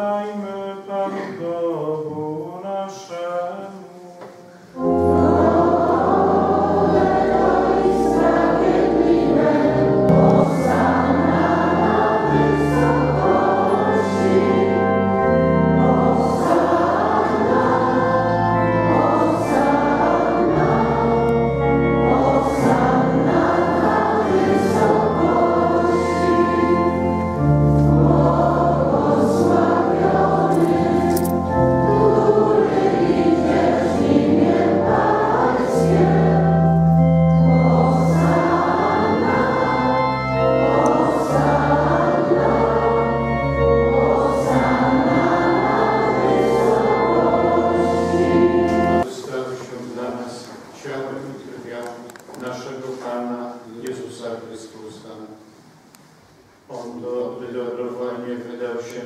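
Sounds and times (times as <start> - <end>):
congregation singing a hymn: 0.0 - 55.5, 56.7 - 59.0
organ bass notes: 4.8 - 49.0.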